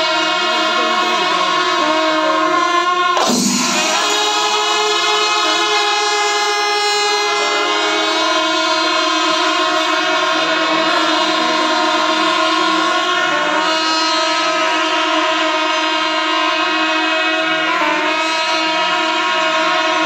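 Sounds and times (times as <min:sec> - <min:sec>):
loud sustained wind instruments: 0:00.0 - 0:20.0
ensemble beating drums: 0:00.6 - 0:07.3
brief rushing noise: 0:03.2 - 0:04.8.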